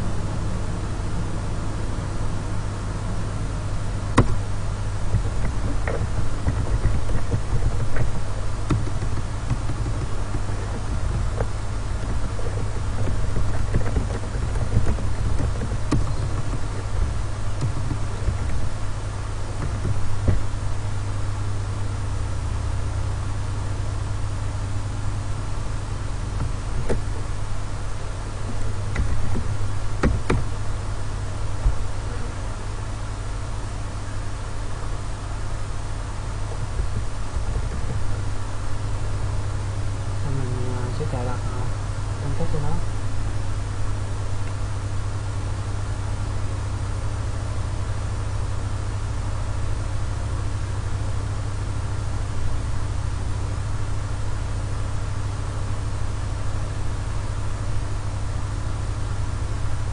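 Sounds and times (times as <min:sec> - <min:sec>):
low hum and hiss: 0:00.0 - 0:59.9
computer keyboard clicks: 0:05.1 - 0:17.0, 0:17.6 - 0:18.6.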